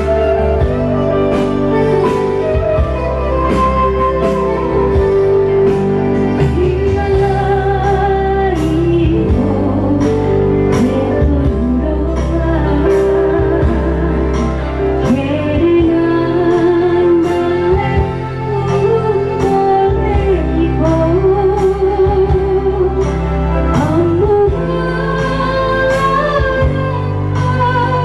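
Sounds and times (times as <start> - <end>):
electronic keyboard chords: 0.0 - 28.0
woman singing: 6.2 - 28.0.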